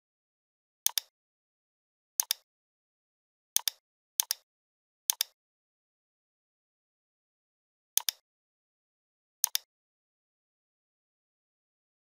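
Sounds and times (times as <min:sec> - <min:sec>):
computer mouse clicks: 0:00.9 - 0:01.1, 0:02.2 - 0:02.5, 0:03.6 - 0:04.5, 0:05.1 - 0:05.4, 0:08.0 - 0:08.2, 0:09.4 - 0:09.7.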